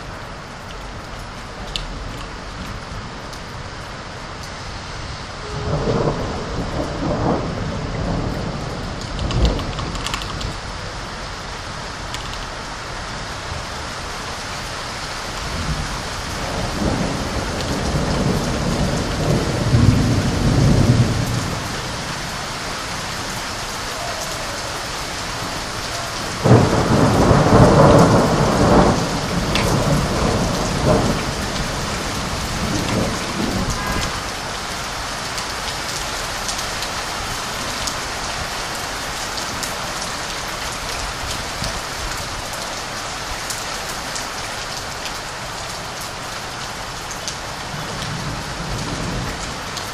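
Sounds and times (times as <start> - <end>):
heavy rain: 0.0 - 49.9
thunder rumbling: 5.4 - 11.4, 15.4 - 22.4, 24.0 - 34.8.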